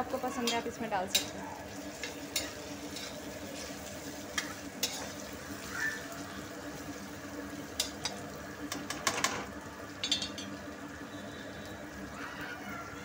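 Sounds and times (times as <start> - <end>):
onions sizzling in hot oil: 0.0 - 13.0
spatula scraping pan: 0.4 - 5.2.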